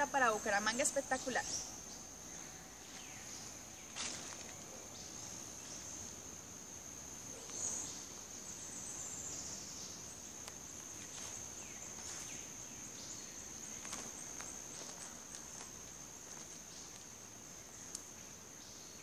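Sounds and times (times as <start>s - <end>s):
insects droning: 0.0s - 19.0s
footsteps in dry leaves: 3.8s - 4.6s, 10.8s - 12.5s.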